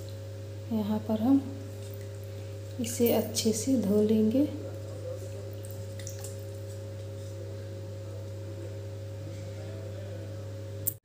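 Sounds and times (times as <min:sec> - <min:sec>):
steady low hum: 0:00.0 - 0:11.0
water lapping faintly: 0:01.5 - 0:08.8
raw chicken squelching in water: 0:04.5 - 0:07.5.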